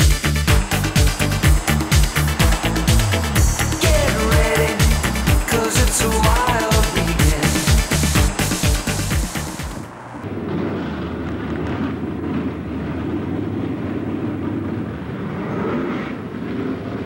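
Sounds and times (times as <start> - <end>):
intro music: 0.0 - 10.3
drag racing car engines rumbling: 0.0 - 15.4.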